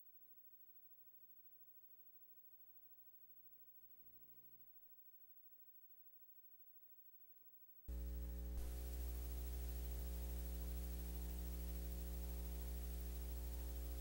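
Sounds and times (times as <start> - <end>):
low electrical hum with hiss: 7.8 - 14.0.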